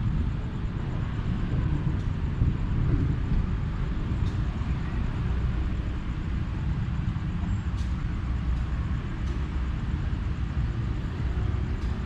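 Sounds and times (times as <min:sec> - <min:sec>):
train rumbling: 0:00.0 - 0:12.0.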